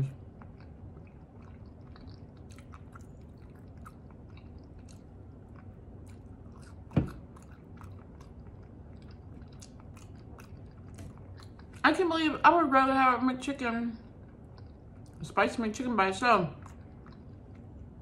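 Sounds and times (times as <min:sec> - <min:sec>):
chewing fries: 0:00.0 - 0:12.5, 0:13.9 - 0:18.0
thump: 0:07.0 - 0:07.2.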